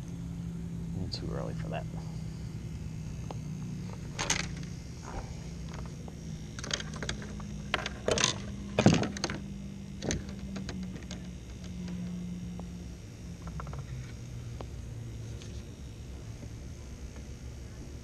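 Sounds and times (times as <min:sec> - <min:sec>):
steady low hum: 0:00.0 - 0:18.0
fishing reel and rod clicking: 0:04.2 - 0:12.6.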